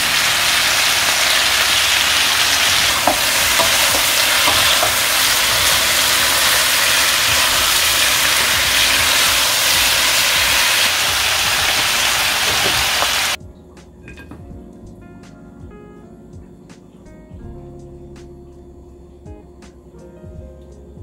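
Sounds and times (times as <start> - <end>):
meat sizzling in frying pan: 0.0 - 13.4
soft music: 0.0 - 21.0.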